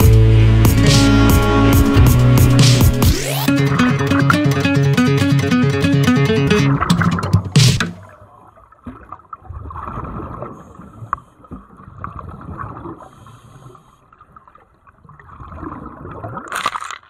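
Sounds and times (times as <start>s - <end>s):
water sloshing and gurgling: 6.7s - 17.0s.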